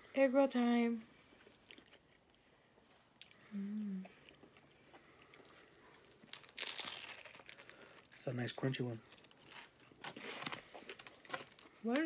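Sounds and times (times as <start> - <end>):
faint chewing with mouth clicks: 1.2 - 8.2
closed-mouth hum: 3.1 - 5.7.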